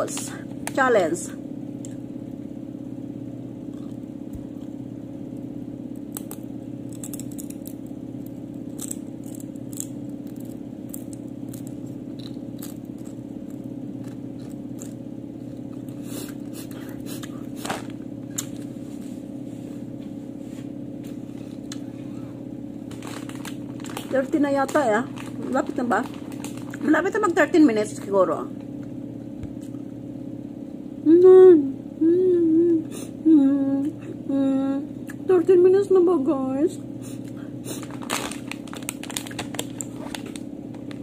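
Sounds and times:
low hum: 0.0s - 41.0s
chips being bitten and chewed: 3.7s - 4.8s, 5.9s - 18.7s, 22.9s - 26.8s, 37.2s - 41.0s.

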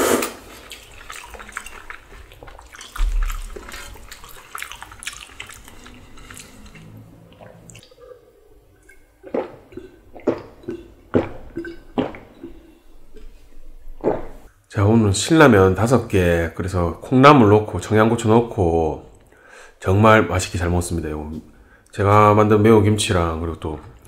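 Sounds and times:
wet slurping and smacking: 0.0s - 12.6s.

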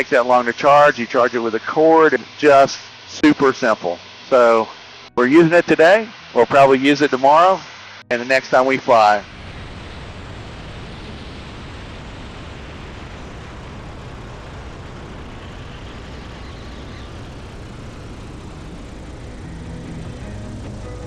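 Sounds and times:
small plane engine running: 0.0s - 21.0s
wind rushing: 9.2s - 21.0s.

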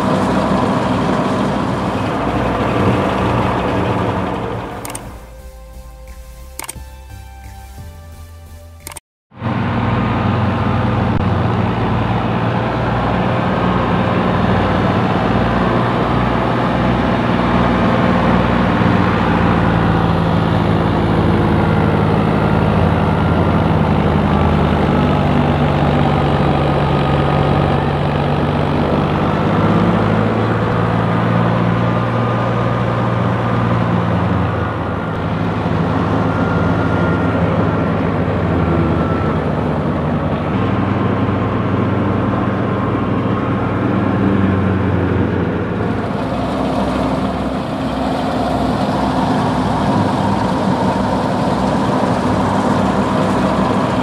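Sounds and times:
thresher drum and fans running: 0.0s - 7.2s, 34.6s - 54.0s
tractor diesel engine running: 0.0s - 54.0s.

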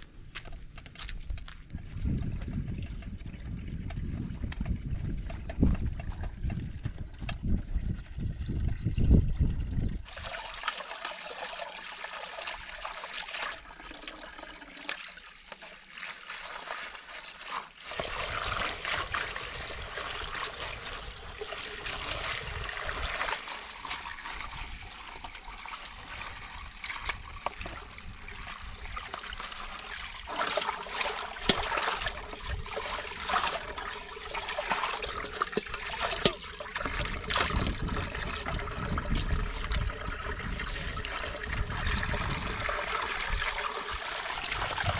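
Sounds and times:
water splashing into pool: 10.0s - 44.9s
hands rinsing potatoes: 10.1s - 41.7s.

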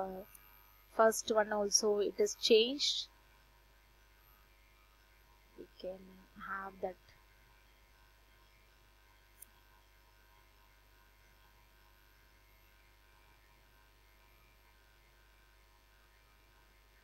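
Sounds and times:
low steady hum: 0.0s - 17.0s.

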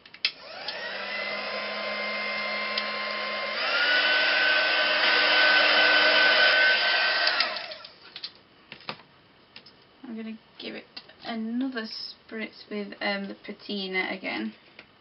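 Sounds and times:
heat gun fan whine: 0.0s - 8.6s.

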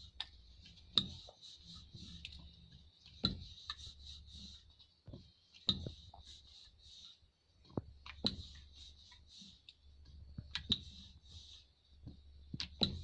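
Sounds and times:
rolling pin rolling dough: 0.0s - 13.0s.

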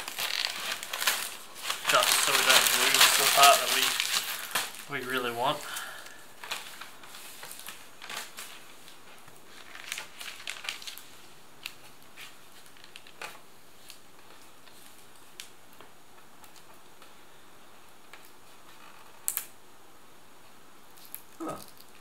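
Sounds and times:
paper and tape crinkling: 0.0s - 17.2s.

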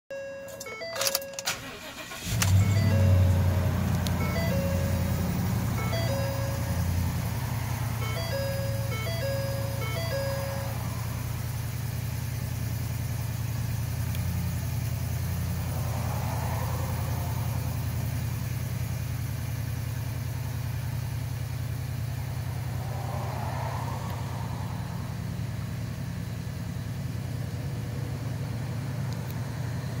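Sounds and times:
truck engine idling: 0.1s - 30.0s.

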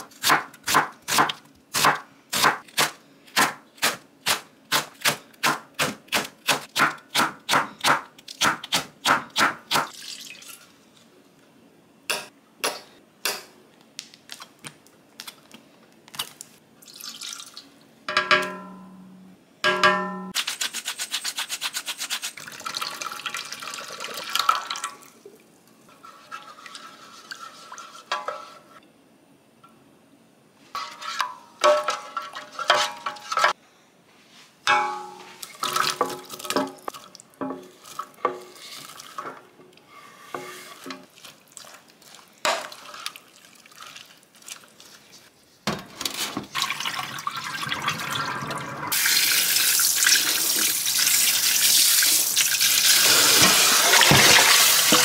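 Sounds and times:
knife scraping cutting board: 39.9s - 41.0s.

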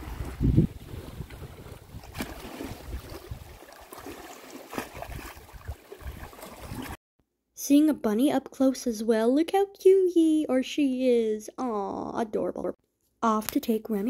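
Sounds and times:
wind buffeting microphone: 0.0s - 3.6s.

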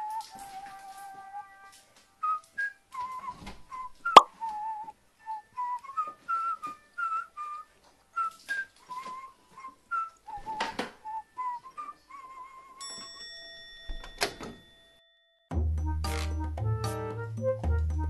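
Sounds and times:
person whistling a tune: 0.0s - 13.0s.

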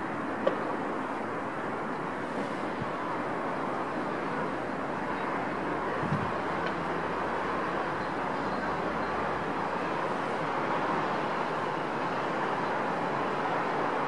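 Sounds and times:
distant city traffic hum: 0.0s - 14.0s.

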